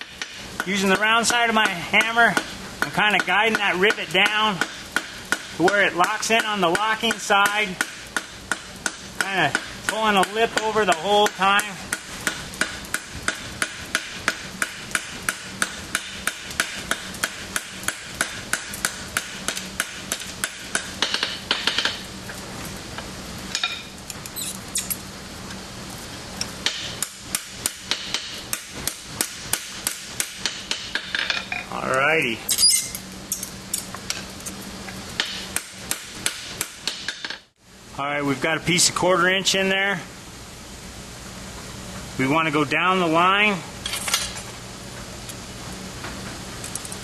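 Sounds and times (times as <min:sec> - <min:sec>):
hammer blows on hot iron rivet: 0:00.0 - 0:22.0
brief rising squeak: 0:24.4 - 0:25.0, 0:32.5 - 0:33.4.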